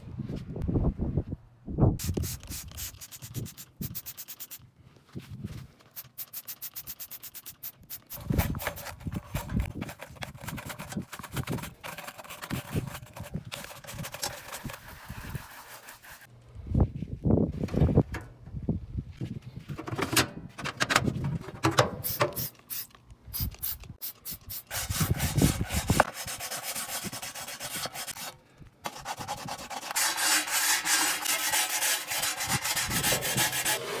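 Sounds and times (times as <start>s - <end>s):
grill brush scrubbing grates: 2.0s - 4.6s, 6.0s - 9.0s, 10.7s - 16.3s, 24.2s - 34.0s
trigger spray bottle squirting: 2.0s - 4.6s, 5.9s - 8.8s, 22.0s - 24.7s.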